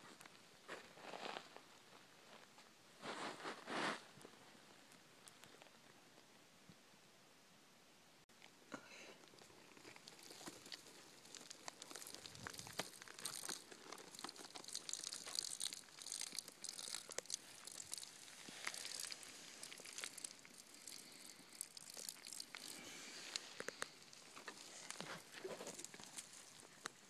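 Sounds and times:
dry grass crackling and rustling: 9.4s - 27.0s.

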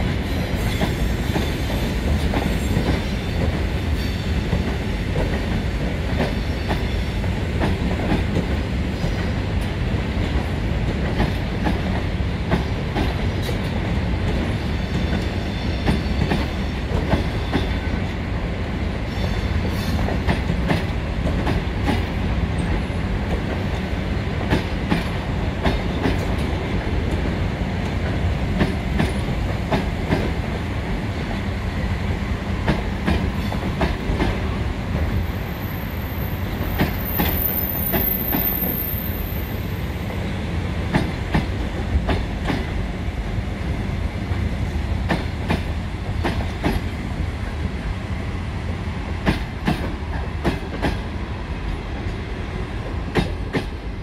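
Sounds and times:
train wheels rumbling: 0.0s - 54.0s
high wheel squeal: 35.5s - 39.6s.

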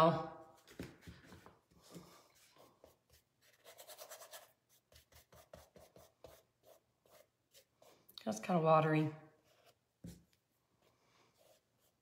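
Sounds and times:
paintbrush scratchy strokes: 2.2s - 8.1s, 9.4s - 12.0s.

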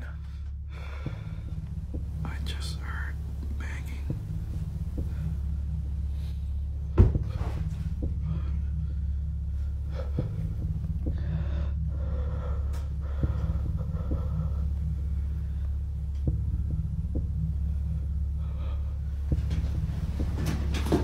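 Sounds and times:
person breathing tensely: 0.0s - 21.0s
steady low hum: 0.0s - 21.0s
sharp knocks: 6.9s - 8.3s.

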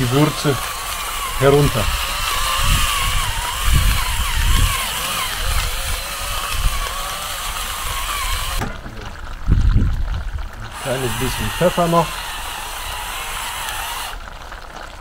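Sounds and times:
low bumps: 0.0s - 11.7s.

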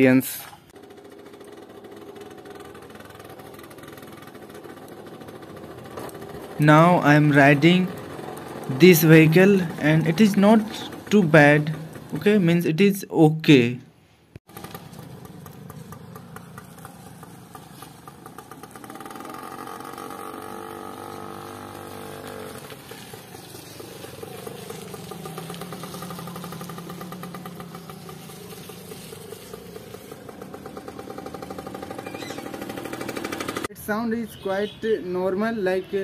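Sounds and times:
person talking: 0.0s - 0.6s, 6.6s - 8.0s, 8.7s - 13.9s
moped engine running: 0.7s - 12.8s, 14.4s - 33.8s.

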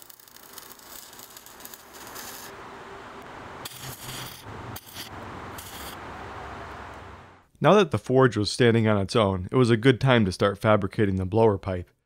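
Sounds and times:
welding arc crackling and sizzling: 0.0s - 6.0s.

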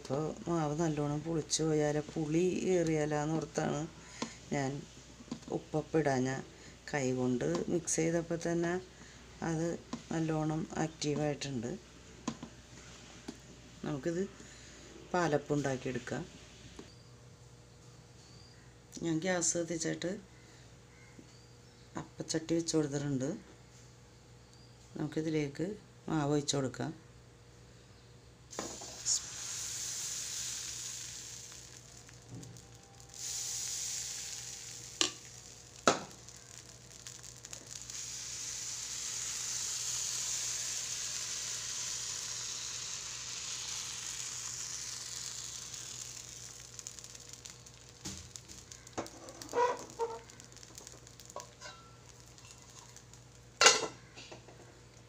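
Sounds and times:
batter sizzling in a pan: 28.5s - 54.2s.

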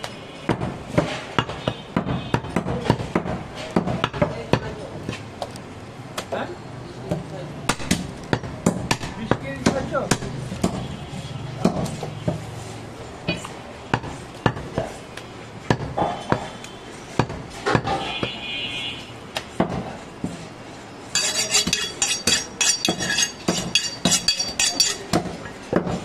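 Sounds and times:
cleaver chopping meat on wood: 0.5s - 5.2s, 7.7s - 10.9s, 13.9s - 14.9s, 15.7s - 16.6s, 21.4s - 26.0s
metallic ringing strikes: 21.2s - 25.1s.

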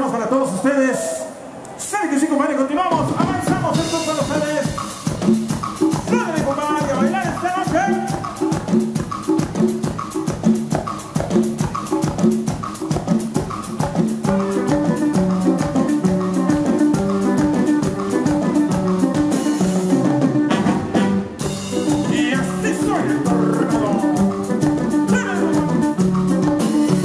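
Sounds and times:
drum and conga beat: 2.9s - 27.0s
guitar: 3.3s - 27.0s
accordion: 14.2s - 27.0s
saxophone: 14.2s - 27.0s.

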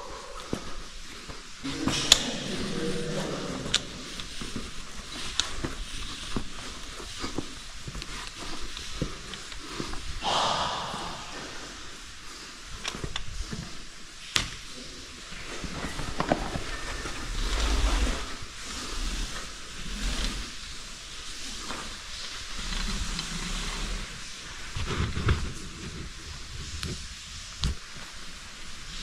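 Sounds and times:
heavy breathing: 0.0s - 4.9s, 9.8s - 12.8s.

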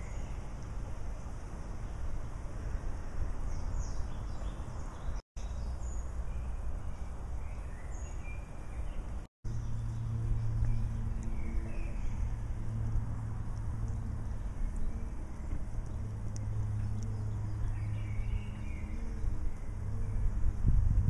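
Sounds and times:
small birds chirping: 3.4s - 20.6s
steady low hum: 8.4s - 21.0s
steady low rumble: 9.0s - 21.0s.

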